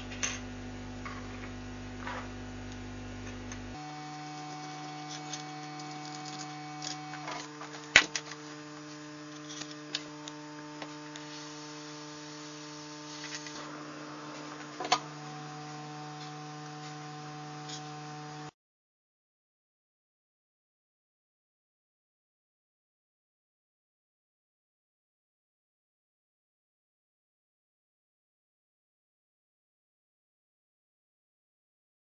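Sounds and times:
electric hum: 0:00.0 - 0:18.6.

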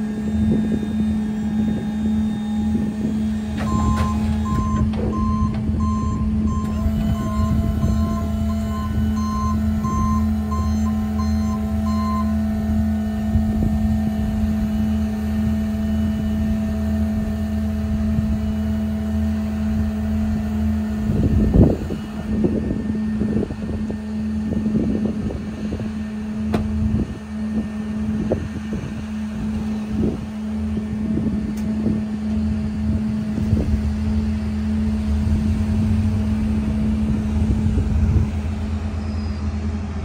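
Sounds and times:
hydraulic whine: 0:00.0 - 0:40.0
truck engines idling: 0:00.0 - 0:40.0
backup alarm beeping: 0:03.6 - 0:12.6.

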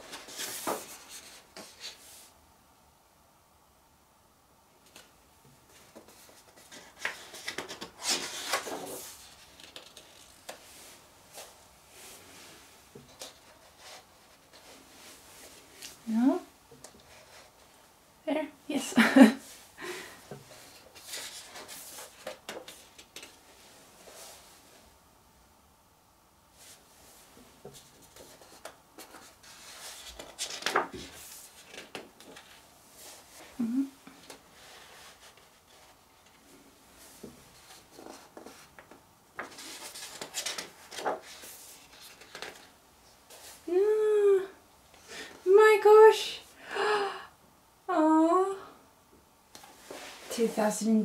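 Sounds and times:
page turning rustle: 0:00.0 - 0:02.2, 0:05.7 - 0:11.5, 0:13.0 - 0:14.8, 0:20.6 - 0:23.4, 0:27.6 - 0:33.3, 0:37.2 - 0:43.6.

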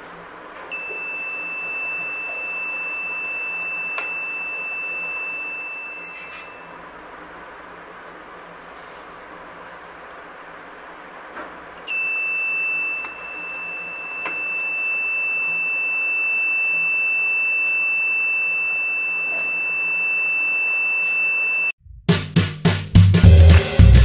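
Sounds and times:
high-pitched electronic buzzer tone: 0:00.7 - 0:06.8, 0:11.9 - 0:21.8.

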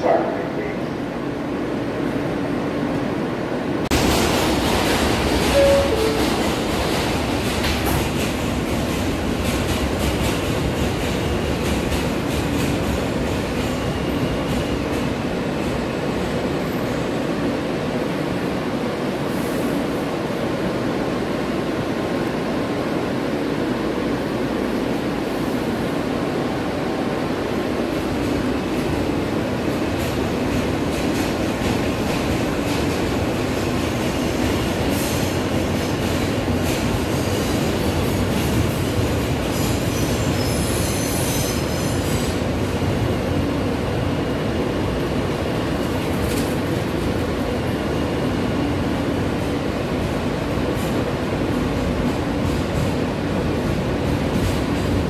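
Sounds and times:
subway car rumble: 0:00.0 - 0:55.0.

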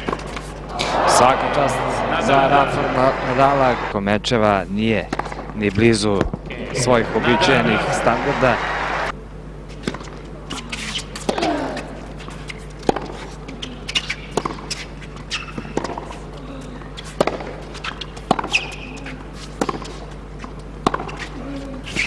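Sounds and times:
tennis racket hitting ball: 0:00.0 - 0:00.6, 0:12.8 - 0:16.2, 0:17.0 - 0:22.0
players grunting: 0:00.7 - 0:03.9, 0:06.5 - 0:08.7.

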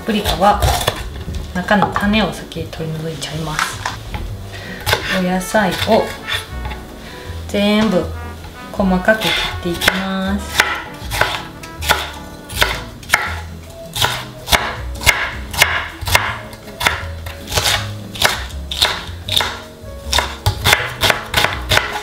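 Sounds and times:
knife chopping on cutting board: 0:04.8 - 0:06.8, 0:09.2 - 0:22.0.

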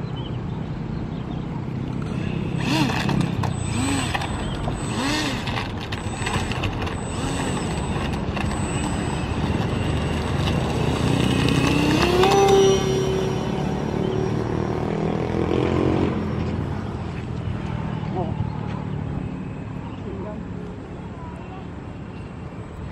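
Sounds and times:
model plane motor whine: 0:02.0 - 0:14.6.

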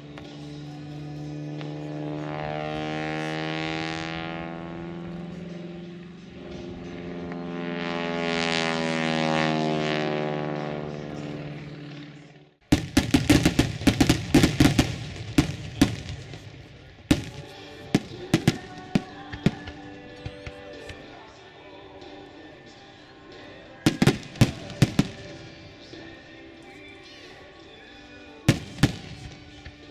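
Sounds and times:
airplane engine droning: 0:00.0 - 0:29.9
fireworks bangs and crackles: 0:12.6 - 0:21.0, 0:23.8 - 0:26.0, 0:28.5 - 0:29.9.

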